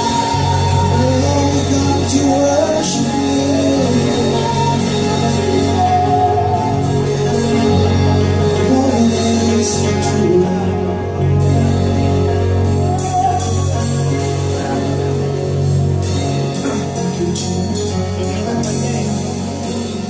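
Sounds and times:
bass notes: 0:00.0 - 0:20.0
drums: 0:00.0 - 0:20.0
guitar: 0:00.0 - 0:20.0
keyboard: 0:00.0 - 0:20.0
person singing lead vocal: 0:00.0 - 0:20.0.

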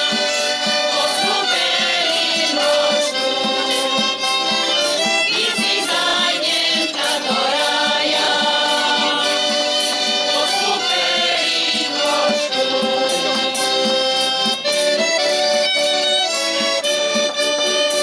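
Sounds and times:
choir singing: 0:00.0 - 0:14.1
accordion: 0:00.0 - 0:18.0
fiddle: 0:00.0 - 0:18.0.

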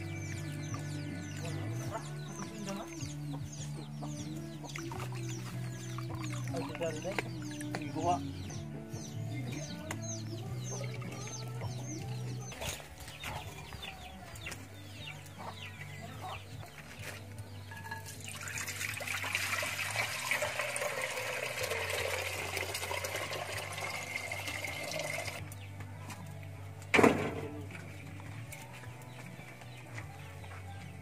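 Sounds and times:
chickens chirping: 0:00.0 - 0:18.4, 0:19.3 - 0:31.0
liquid pouring into metal pot: 0:17.7 - 0:25.4.

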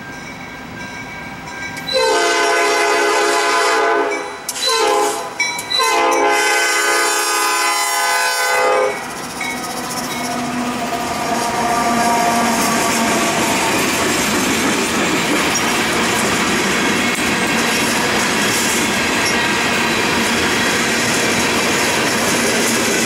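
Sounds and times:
locomotive air horn blasts: 0:01.9 - 0:09.0, 0:10.4 - 0:13.5
train wheels clicking on rail joints: 0:04.2 - 0:06.4, 0:08.9 - 0:23.0.

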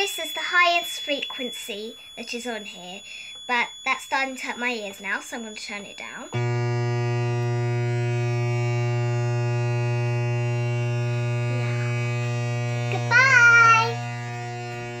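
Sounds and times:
synthesizer low buzzing tone: 0:06.2 - 0:15.0
girl calling out: 0:12.9 - 0:14.0.

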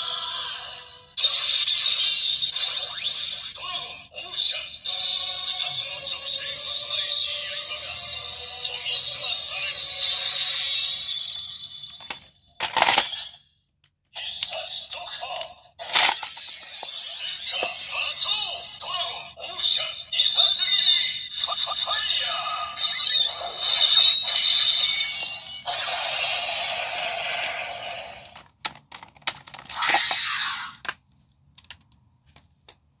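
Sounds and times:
toy belt electronic music: 0:00.0 - 0:03.8, 0:04.5 - 0:13.4, 0:14.2 - 0:28.4
toy handling: 0:10.0 - 0:21.0, 0:23.0 - 0:32.9
plastic clicks: 0:12.0 - 0:13.1, 0:13.8 - 0:16.9, 0:28.2 - 0:32.8.

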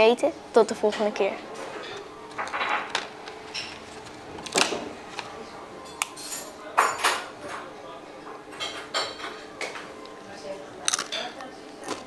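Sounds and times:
papadum crunching: 0:10.8 - 0:12.0.

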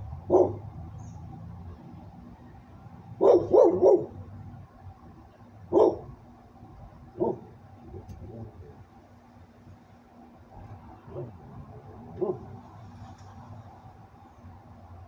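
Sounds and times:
dog barking: 0:00.3 - 0:00.6, 0:03.2 - 0:04.2, 0:05.7 - 0:06.1, 0:07.2 - 0:07.5, 0:12.2 - 0:12.5.

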